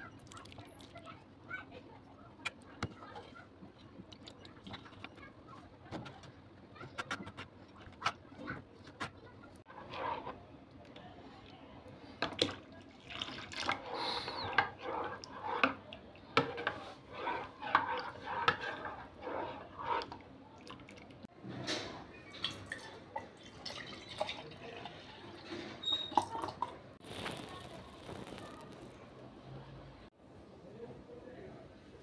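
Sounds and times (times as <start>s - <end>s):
spoon stirring and sloshing: 0.0s - 21.3s, 22.2s - 28.4s
water pouring into a bowl: 12.4s - 14.4s, 22.3s - 28.8s.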